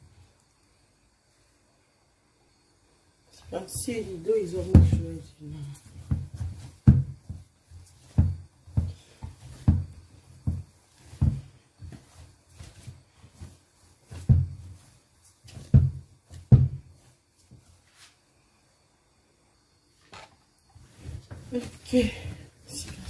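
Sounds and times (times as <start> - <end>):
dough thumping on tabletop: 4.6 - 17.1.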